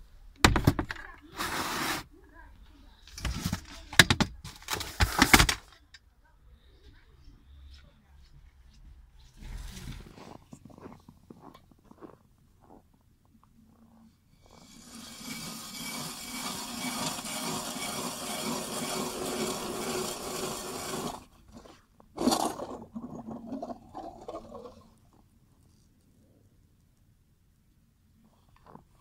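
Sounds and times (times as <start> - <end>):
ice crunching: 9.4 - 12.8, 14.5 - 25.0
ice auger grinding ice: 14.4 - 24.8.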